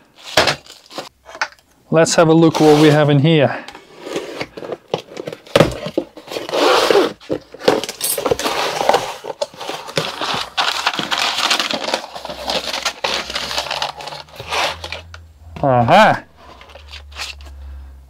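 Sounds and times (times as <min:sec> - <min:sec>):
packaging being torn and crinkled: 0:07.8 - 0:15.1.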